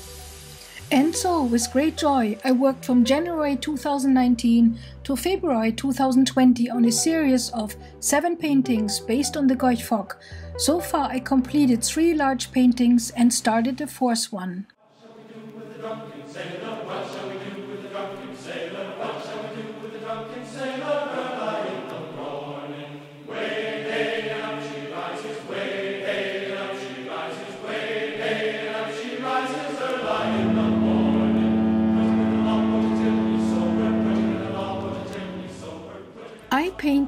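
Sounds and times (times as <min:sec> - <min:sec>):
choir singing chords: 0:14.8 - 0:36.6
loud steady low tone: 0:30.1 - 0:36.1.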